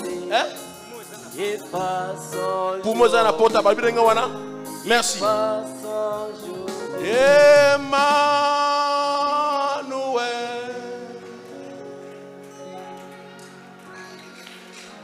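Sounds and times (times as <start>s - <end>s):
man singing gospel: 0.0s - 11.6s
sustained instrumental backing: 0.0s - 15.0s.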